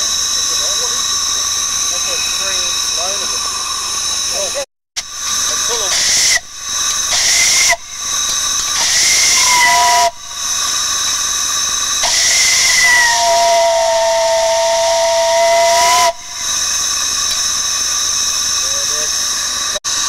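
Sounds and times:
hiss of escaping steam: 0.0 - 20.0
steam whistle blasts: 5.7 - 17.2.

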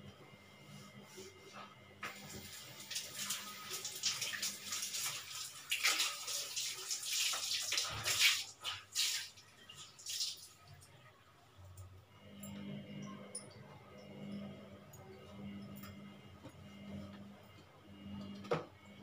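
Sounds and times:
water running from tap: 2.1 - 10.8
water splashing on dishes: 2.1 - 10.9.

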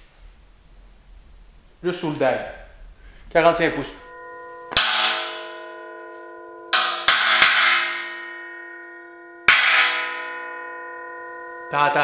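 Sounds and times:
bell-like metal ringing: 2.0 - 12.0
hammer striking steel: 3.7 - 12.0.

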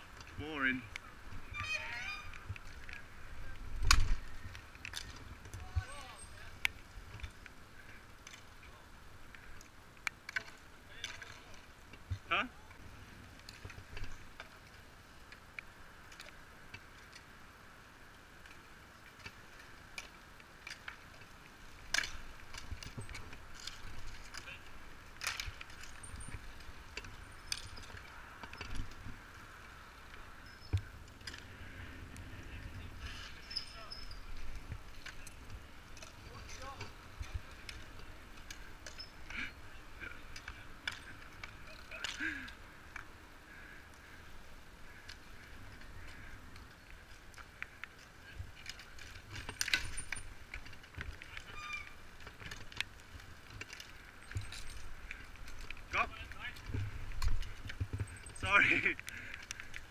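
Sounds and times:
bicycle tyres rolling on asphalt: 0.0 - 59.9
short high squeaks: 1.5 - 2.4, 33.3 - 34.4, 51.4 - 52.0
wind rumble: 11.7 - 41.8.

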